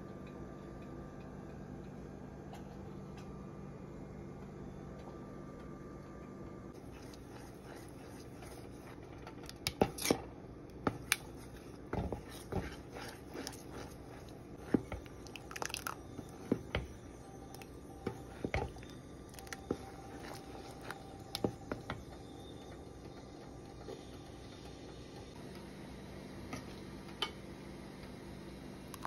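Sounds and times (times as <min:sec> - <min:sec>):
spoon stirring thick sauce: 0:06.8 - 0:10.2, 0:10.8 - 0:21.8.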